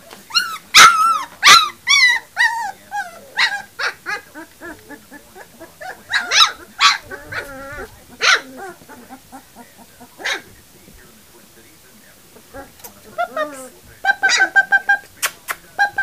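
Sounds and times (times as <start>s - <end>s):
puppies yipping: 0.0s - 10.6s, 12.3s - 16.0s
puppy whining: 0.0s - 10.6s, 12.3s - 15.1s.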